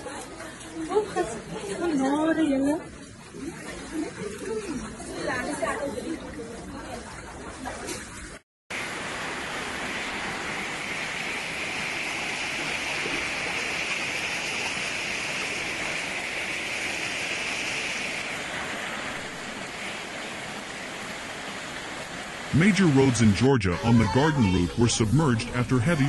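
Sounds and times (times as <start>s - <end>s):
floodwater rushing: 0.0s - 26.0s
heavy rain: 8.7s - 26.0s.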